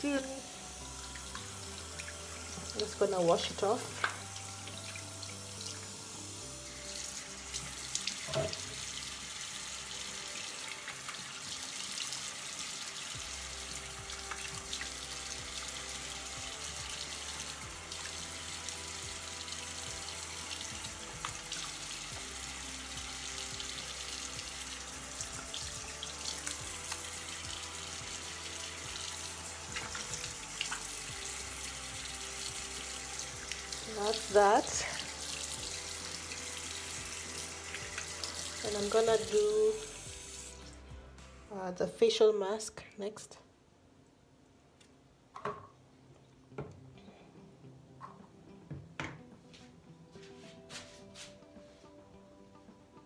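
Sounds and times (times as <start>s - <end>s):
tap water running into sink: 0.1s - 6.2s, 6.8s - 40.8s.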